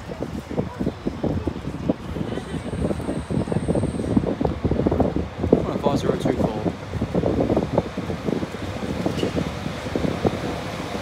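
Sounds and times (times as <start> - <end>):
diesel train rumble: 0.0 - 11.0
wind buffeting microphone: 0.0 - 11.0.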